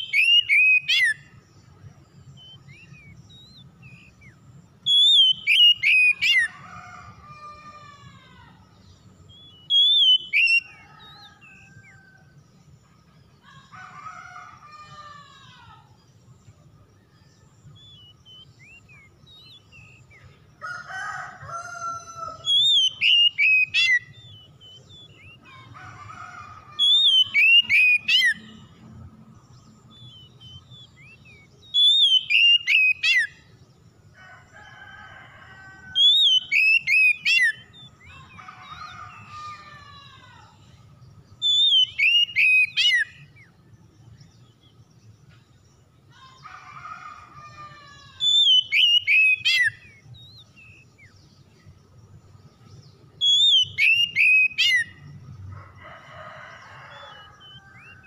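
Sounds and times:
bird singing whistled phrases: 0:00.0 - 0:01.3, 0:02.4 - 0:06.5, 0:09.3 - 0:11.6, 0:22.3 - 0:25.4, 0:26.8 - 0:28.6, 0:30.0 - 0:33.4, 0:36.0 - 0:39.3, 0:41.4 - 0:43.5, 0:48.0 - 0:51.1, 0:53.2 - 0:55.0
lower rough bird phrases: 0:17.6 - 0:28.9, 0:46.0 - 0:51.8.

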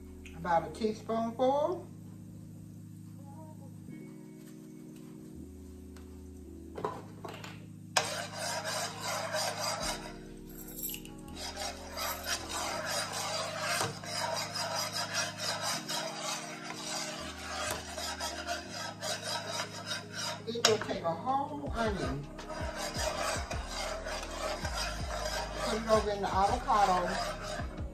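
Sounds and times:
metal whisk scraping frying pan: 0:08.0 - 0:27.9.

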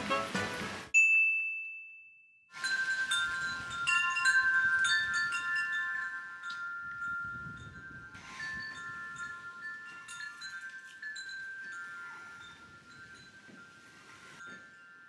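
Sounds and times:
metal wind chimes ringing: 0:01.0 - 0:15.0
wind rumble on microphone: 0:06.7 - 0:10.6.

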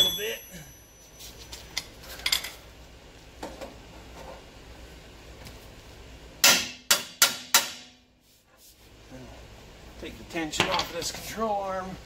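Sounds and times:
metallic clinks of hand tools: 0:00.0 - 0:01.2.

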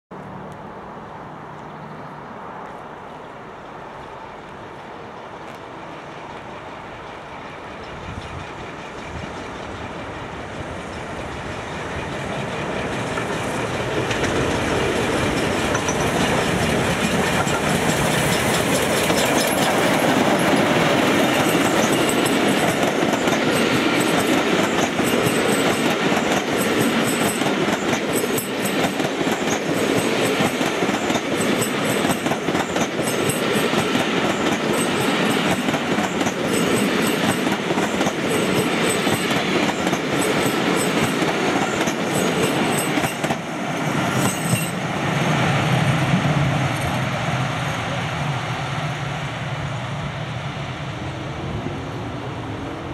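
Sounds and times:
steam locomotive passing: 0:00.3 - 0:52.9
train wheels clicking over rail joints: 0:06.3 - 0:44.9.

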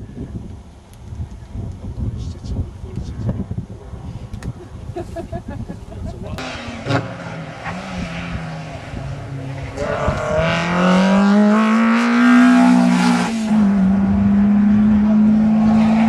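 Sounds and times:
rally car engine passing: 0:06.4 - 0:16.0.

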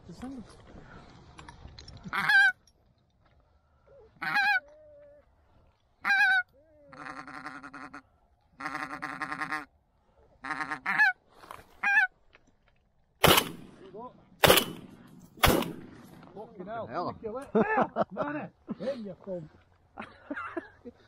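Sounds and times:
geese honking: 0:02.1 - 0:02.6, 0:04.2 - 0:04.8, 0:06.0 - 0:09.7, 0:10.4 - 0:11.2, 0:11.8 - 0:12.1.

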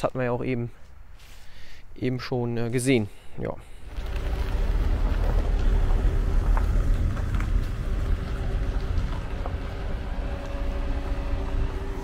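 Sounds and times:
steady mechanical hum: 0:03.7 - 0:12.0
wind buffeting microphone: 0:03.8 - 0:12.0.

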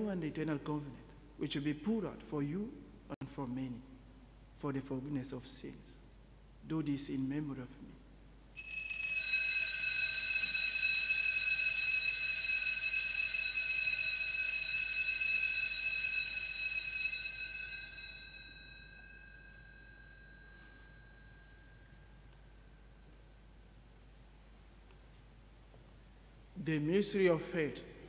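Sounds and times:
bell ringing: 0:08.6 - 0:22.8.

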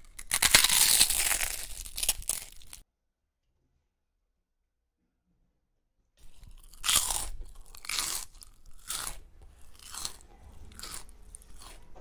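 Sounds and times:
crunchy food crunching in bowl: 0:00.0 - 0:02.8, 0:06.2 - 0:12.0.

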